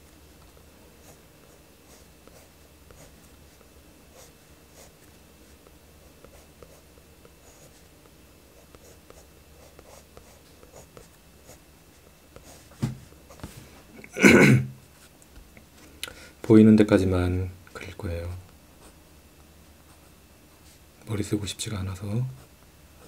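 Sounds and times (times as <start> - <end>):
pencil scratching on paper: 8.6 - 12.7.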